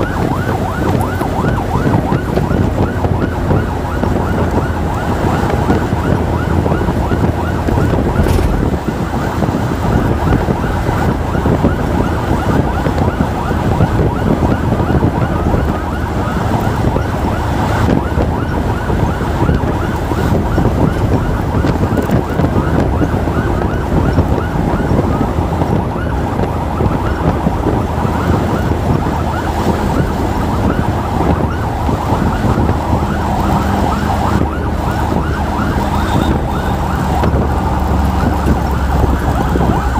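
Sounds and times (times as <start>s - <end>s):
motorcycle engine rumble: 0.0s - 17.4s
yelping emergency sirens: 0.0s - 39.9s.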